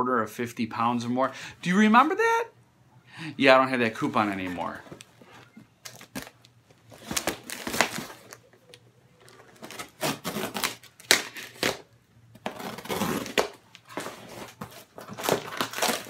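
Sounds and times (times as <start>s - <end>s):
cardboard parcel being handled: 4.3s - 11.8s, 12.4s - 16.0s.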